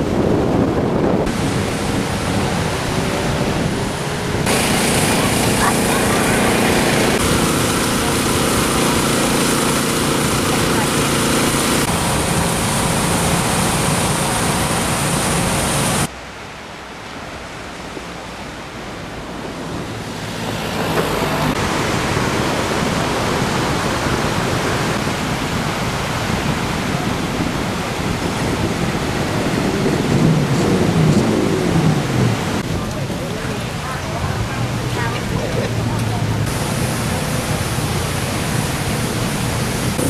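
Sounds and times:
wind on microphone: 0.0 - 16.1, 19.0 - 40.0
surf breaking on beach: 0.0 - 16.2, 18.0 - 40.0
steady hum: 1.0 - 17.6.

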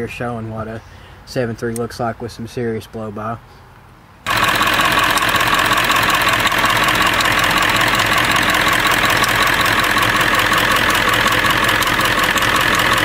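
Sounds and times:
diesel engine idling with clatter: 4.3 - 13.0.

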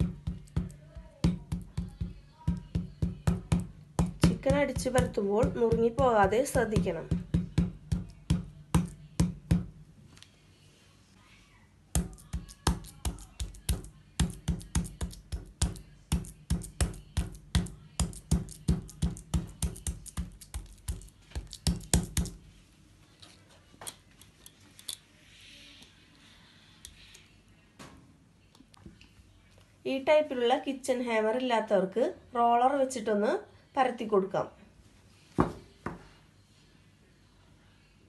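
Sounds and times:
meat mallet pounding chicken: 0.0 - 9.8, 12.0 - 22.4.

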